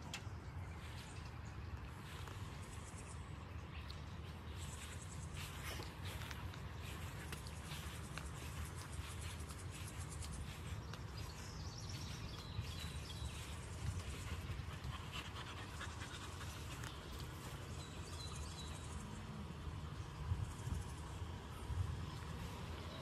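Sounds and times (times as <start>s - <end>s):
dog panting: 13.8s - 18.9s.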